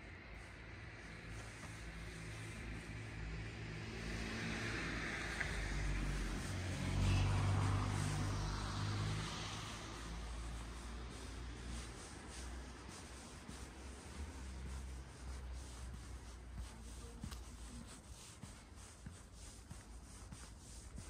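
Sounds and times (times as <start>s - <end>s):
vehicle passing by: 0.3s - 17.7s.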